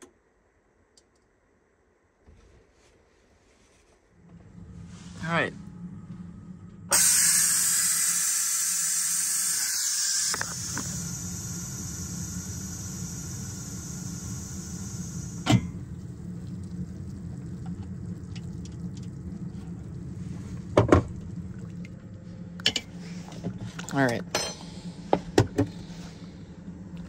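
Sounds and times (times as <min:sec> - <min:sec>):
low steady hum: 0:00.0 - 0:27.0
steam hissing from pressure cooker valve: 0:06.9 - 0:15.8.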